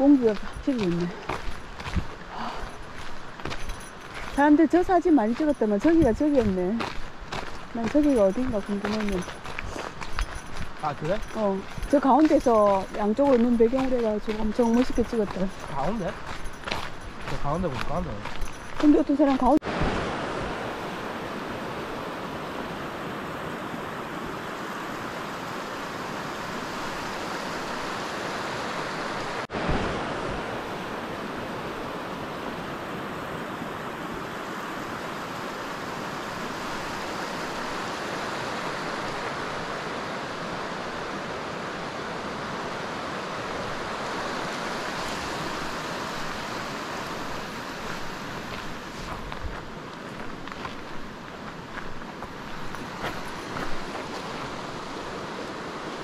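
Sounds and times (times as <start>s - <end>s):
river rushing over gravel: 0.0s - 56.0s.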